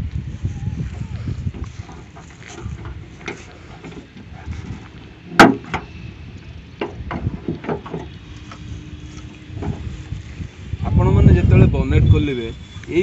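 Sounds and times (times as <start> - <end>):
prop rod knocks and rattles: 1.5 - 6.0, 6.8 - 10.0
car bonnet metallic click: 5.3 - 5.9.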